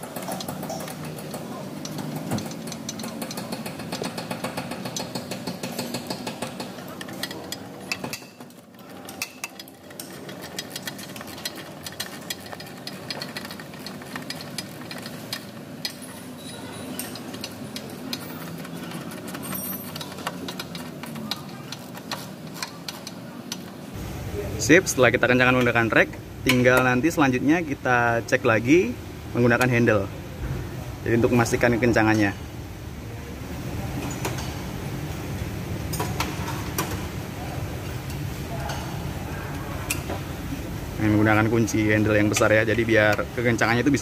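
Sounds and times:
ratchet wrench clicking: 9.1 - 23.7.

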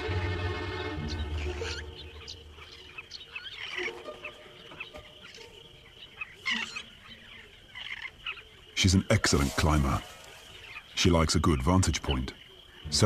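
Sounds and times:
background music: 0.0 - 5.9, 12.7 - 13.0
birds chirping: 0.0 - 13.0.

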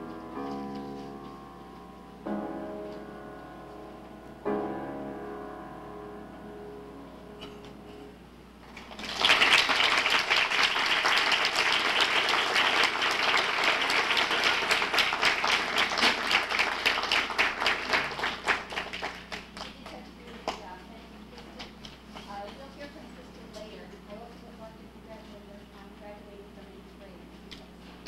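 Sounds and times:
piano notes: 0.0 - 8.7
audience applause: 8.6 - 20.0.

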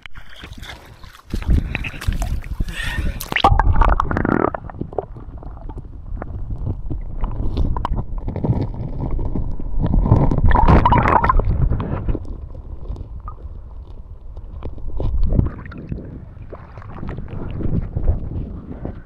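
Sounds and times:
muffled underwater river rushing: 0.0 - 19.0
knocks and splashes: 0.2 - 8.2, 9.9 - 12.1.

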